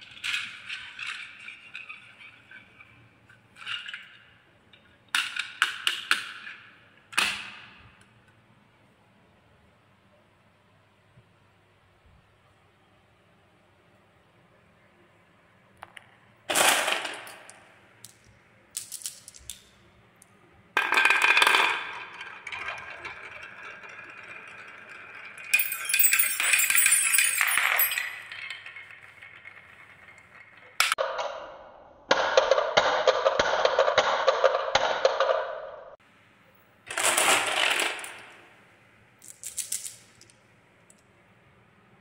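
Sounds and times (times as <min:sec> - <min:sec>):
balls rolling on wooden track: 0:00.0 - 0:06.8, 0:15.8 - 0:19.5, 0:20.2 - 0:31.0, 0:36.9 - 0:38.6
rapid rattle of many balls: 0:20.8 - 0:31.0, 0:36.9 - 0:38.5.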